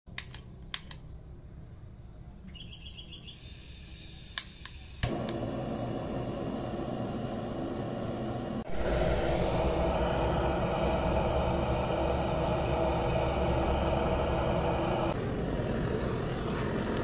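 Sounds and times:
blow torch steady hiss: 3.4s - 17.0s
blow torch igniter clicks: 3.6s - 15.2s, 16.5s - 17.0s.

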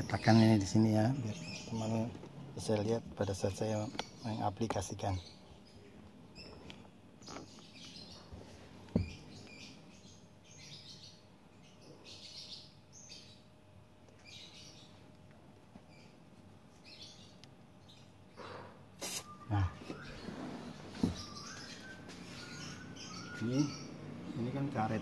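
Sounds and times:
faint bird chirps: 15.8s - 25.0s.

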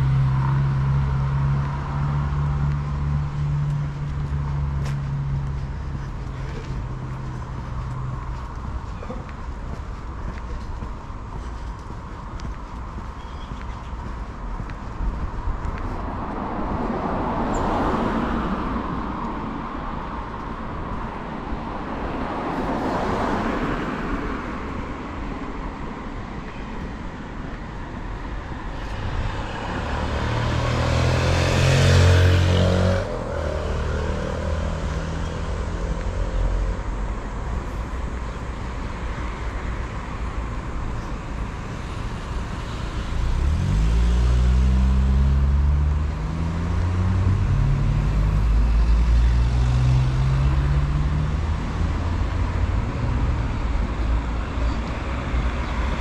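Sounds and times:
cars swishing past: 15.2s - 56.0s
vehicle engine passing: 28.2s - 37.1s, 41.9s - 53.9s
vehicle pulling away: 28.4s - 36.7s, 42.0s - 53.7s.

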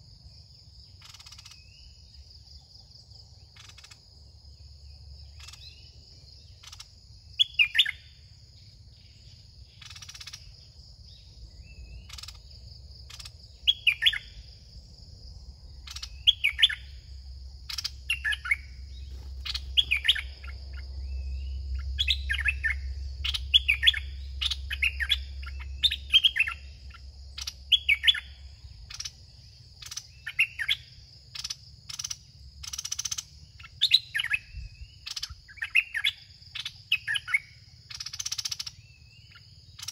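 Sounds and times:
high insect drone: 0.0s - 39.9s
bulbuls chirping: 8.9s - 14.6s, 15.7s - 39.9s.

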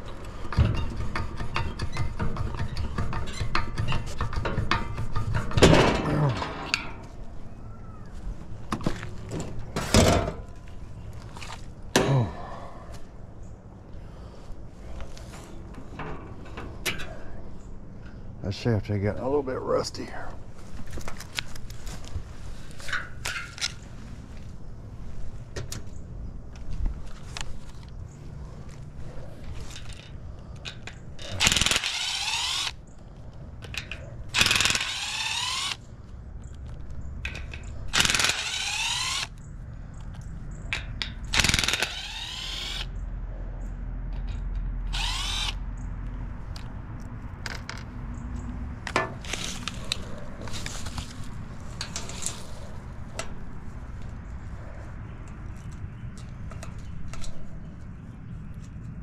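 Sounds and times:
power driver whirring: 31.4s - 32.8s, 34.3s - 35.8s, 37.9s - 39.4s, 41.4s - 42.9s, 44.9s - 45.6s.

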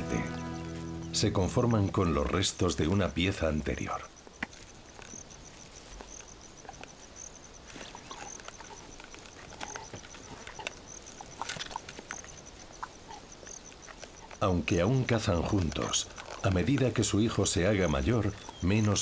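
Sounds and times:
high insect pulsing: 0.0s - 19.0s
crunching clicks: 4.2s - 19.0s
leopards chewing and gnawing: 4.2s - 19.0s.

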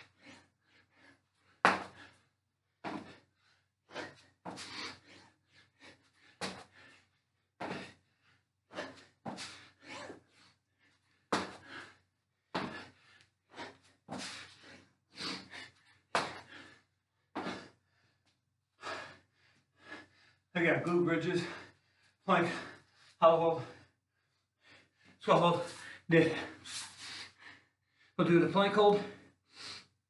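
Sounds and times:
thuds and scuffs on floor: 1.7s - 2.1s, 2.8s - 3.2s, 4.0s - 4.8s, 6.4s - 6.8s, 7.6s - 8.0s, 8.8s - 9.6s, 11.3s - 11.8s, 12.6s - 12.9s, 13.6s - 14.5s, 16.2s - 16.6s, 17.4s - 17.7s.

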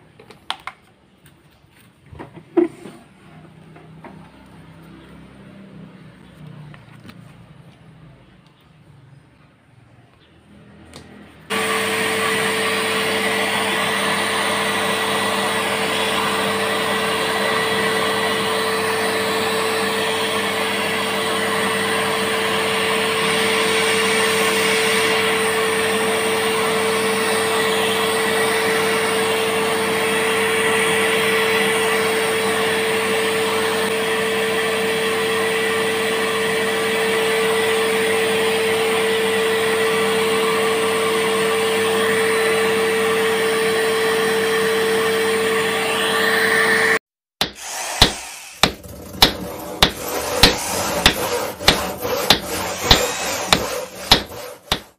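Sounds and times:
vacuum cleaner switching on: 10.9s - 54.9s
vacuum cleaner humming: 11.0s - 54.9s.

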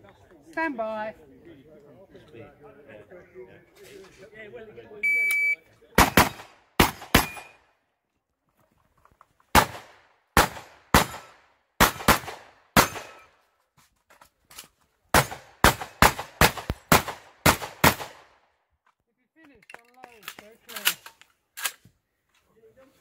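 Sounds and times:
rifle shots with echo: 6.0s - 7.6s, 9.5s - 13.3s, 15.1s - 18.4s.

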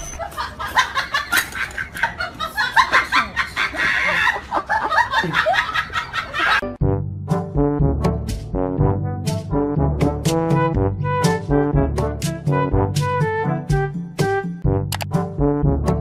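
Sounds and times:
music: 6.6s - 16.0s.

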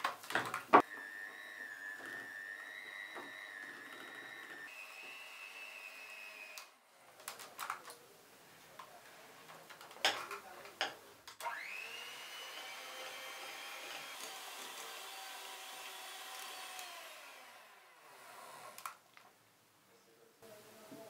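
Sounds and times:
electric hand mixer whining: 0.8s - 6.8s, 11.4s - 18.9s.

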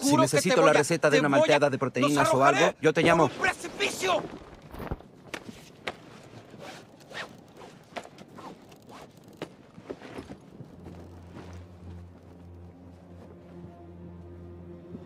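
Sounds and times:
rasping and rustling strokes: 4.3s - 12.5s
low music drone: 10.6s - 15.0s.

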